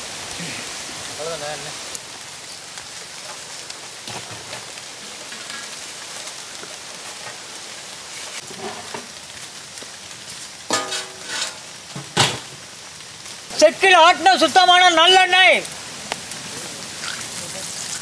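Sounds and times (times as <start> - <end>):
steady hiss: 0.0 - 18.0
metal wok clanking: 10.7 - 12.5.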